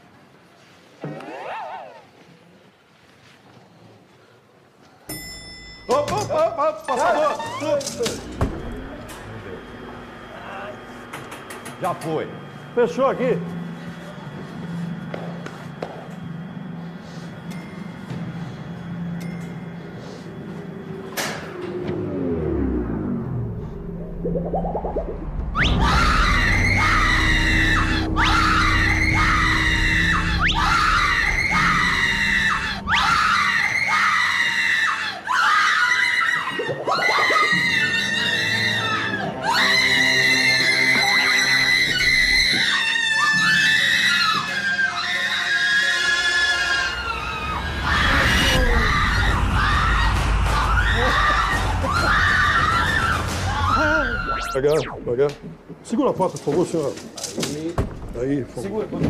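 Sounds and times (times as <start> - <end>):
high-pitched screaming in terror: 24.9 - 55.0.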